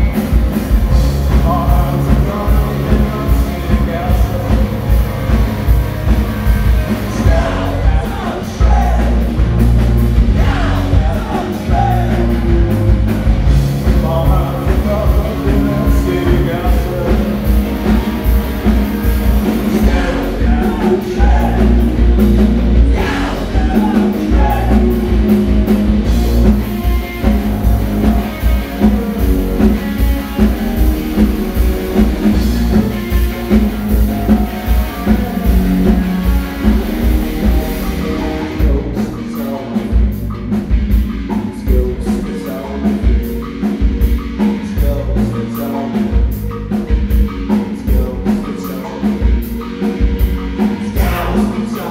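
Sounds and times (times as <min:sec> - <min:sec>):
man singing: 0:00.0 - 0:05.4, 0:06.9 - 0:09.6, 0:10.2 - 0:18.1, 0:19.4 - 0:40.4, 0:41.3 - 0:49.7, 0:50.6 - 0:51.9
drum hits: 0:00.0 - 0:39.0
rock band playing: 0:00.0 - 0:51.9.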